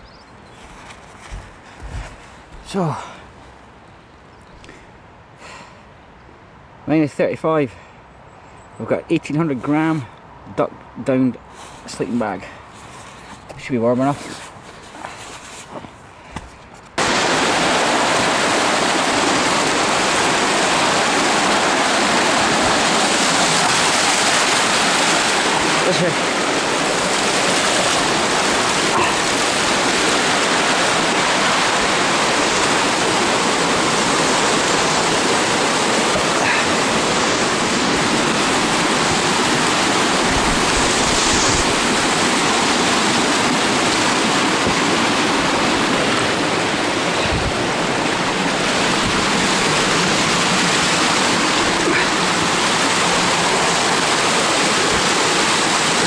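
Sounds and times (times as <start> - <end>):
waterfall rushing over rocks: 17.0 - 56.0.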